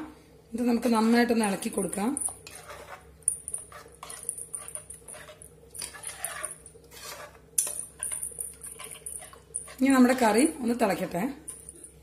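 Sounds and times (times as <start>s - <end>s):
metal spoon scraping pot: 1.8s - 10.5s.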